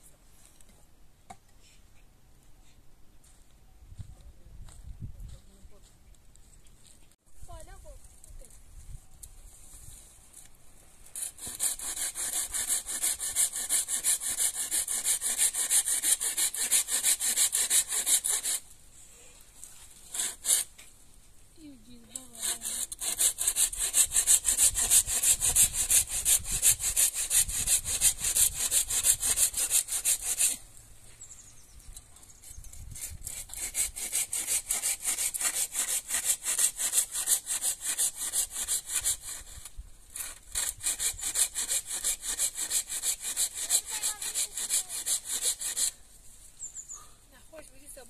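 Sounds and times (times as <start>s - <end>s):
hand saw cutting wood: 11.1s - 18.7s, 20.0s - 20.8s, 22.1s - 30.7s, 32.4s - 46.0s.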